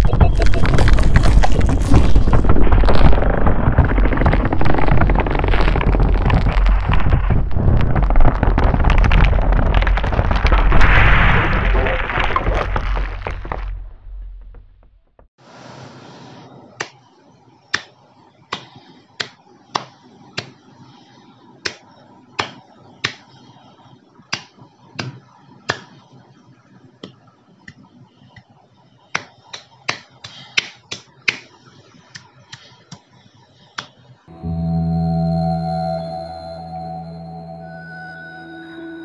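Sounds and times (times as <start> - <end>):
hands clapping: 29.2 - 31.5
music: 34.3 - 39.0.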